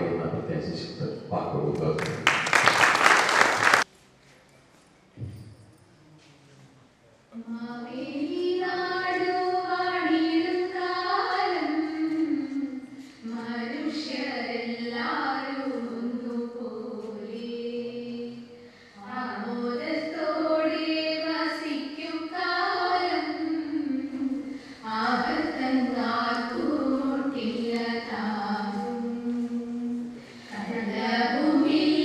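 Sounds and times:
women singing together: 0:07.4 - 0:32.0.

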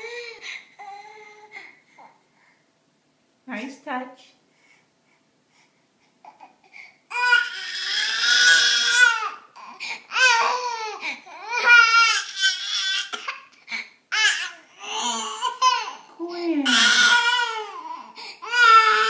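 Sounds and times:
baby crying angrily: 0:07.1 - 0:13.5, 0:14.1 - 0:19.0.

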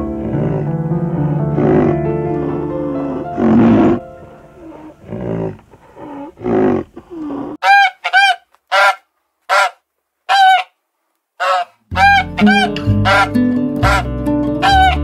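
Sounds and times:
guitar music: 0:00.0 - 0:04.9, 0:11.9 - 0:15.0
low rough animal calls: 0:04.6 - 0:07.8
short high animal calls: 0:11.4 - 0:13.3.

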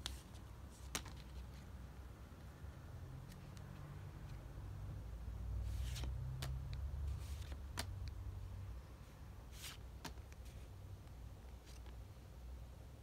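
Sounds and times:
cards snapping: 0:00.8 - 0:01.4, 0:05.8 - 0:08.2, 0:09.6 - 0:10.5
cards sliding swishes: 0:05.6 - 0:08.2, 0:09.4 - 0:10.8, 0:11.4 - 0:12.1.

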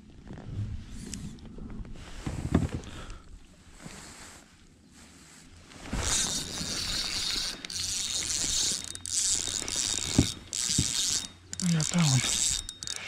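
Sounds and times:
fishing reel gears whirring: 0:06.0 - 0:13.0.

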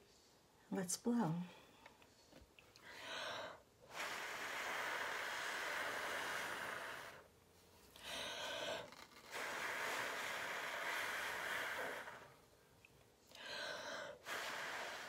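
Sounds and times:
person blowing air by mouth: 0:03.8 - 0:07.3, 0:08.1 - 0:12.4, 0:14.1 - 0:15.0.

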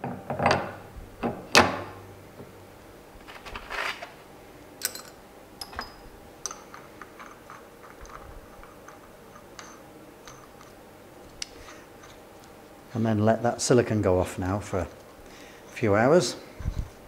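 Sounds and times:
metal scrape: 0:03.2 - 0:04.2.

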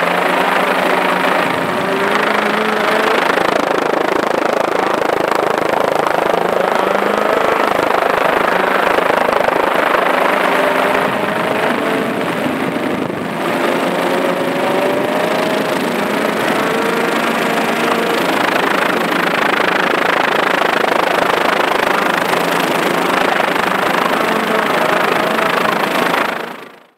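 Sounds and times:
rally car engine at full throttle: 0:00.0 - 0:26.9
steady rushing noise: 0:00.0 - 0:26.9.

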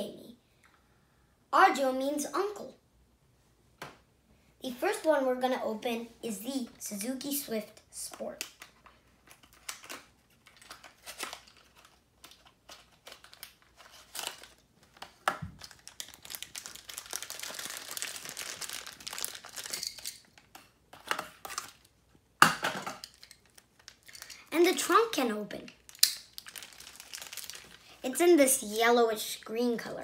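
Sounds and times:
loud sharp plastic crackle: 0:08.4 - 0:22.0, 0:22.8 - 0:24.8, 0:25.6 - 0:28.2
plastic bag crinkling: 0:09.0 - 0:20.6, 0:23.0 - 0:28.8.

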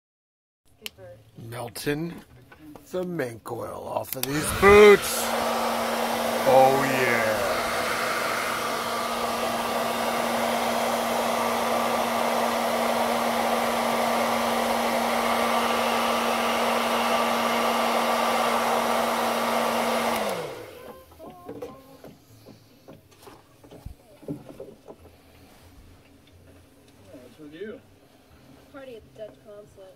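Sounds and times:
hair dryer running: 0:04.1 - 0:21.7.

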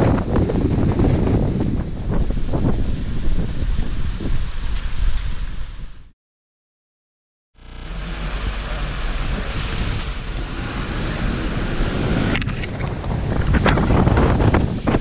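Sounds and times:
wind buffeting camera microphone: 0:00.0 - 0:06.1, 0:09.1 - 0:15.0.

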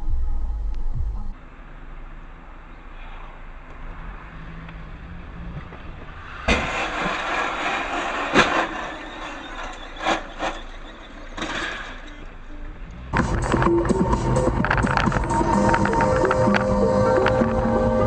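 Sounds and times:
car engine and road hum: 0:00.0 - 0:18.0
loud rushing noise: 0:06.0 - 0:10.6.

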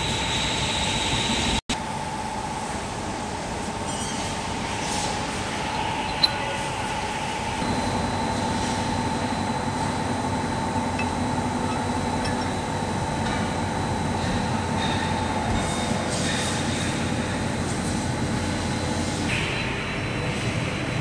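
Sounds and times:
heavy machinery humming: 0:04.5 - 0:21.0.

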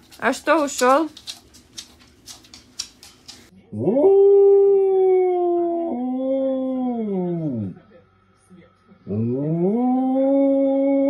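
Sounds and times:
dog howling: 0:03.7 - 0:07.8, 0:09.1 - 0:11.0.

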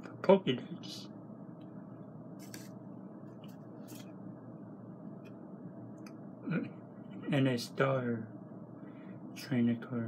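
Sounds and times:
room hiss: 0:00.0 - 0:10.0
cards scraping together: 0:02.4 - 0:02.7.

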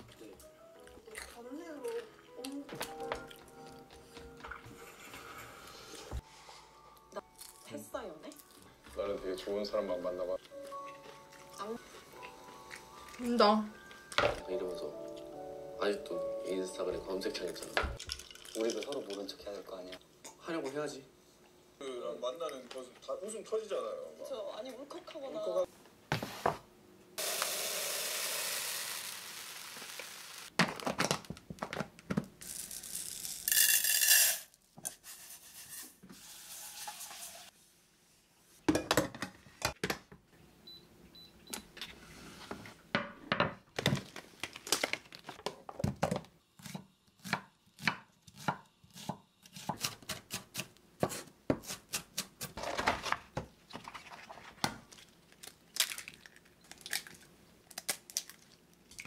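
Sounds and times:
dishes and utensils on counter: 0:02.7 - 0:07.7, 0:13.9 - 0:14.6, 0:17.4 - 0:19.6, 0:26.1 - 0:26.7, 0:30.6 - 0:37.6, 0:38.6 - 0:40.2, 0:41.7 - 0:49.2, 0:49.8 - 0:57.3.

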